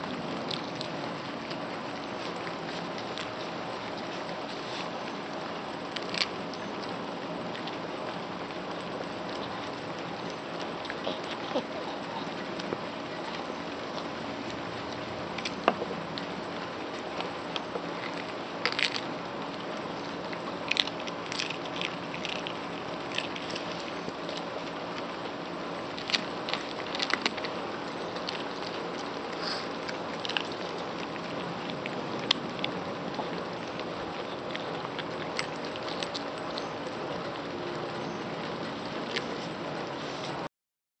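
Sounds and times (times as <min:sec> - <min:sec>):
background hum: 0:00.0 - 0:40.5
dog chewing crunchy food: 0:00.0 - 0:40.5.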